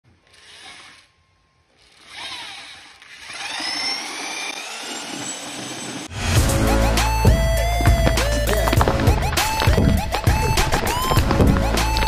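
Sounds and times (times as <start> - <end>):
electric drill mixing: 1.8 - 6.1.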